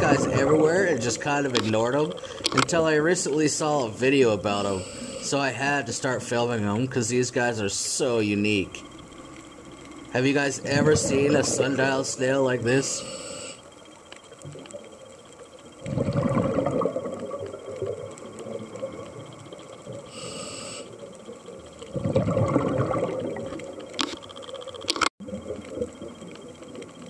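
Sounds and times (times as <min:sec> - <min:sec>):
exhaled bubbles gurgling underwater: 0:00.0 - 0:02.4, 0:10.2 - 0:13.3, 0:14.3 - 0:24.0, 0:25.2 - 0:27.0
regulator inhalation hiss: 0:04.4 - 0:05.7, 0:11.8 - 0:14.2, 0:19.9 - 0:21.5.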